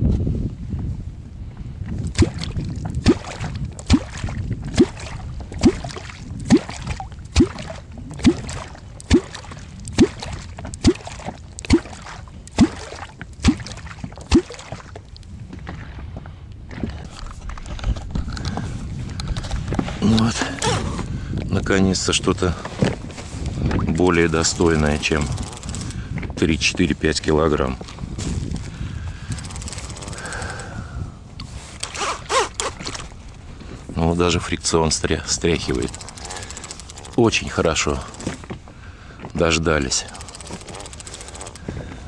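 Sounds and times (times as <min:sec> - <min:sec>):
wooden tool plunking on water: 0:02.0 - 0:15.8.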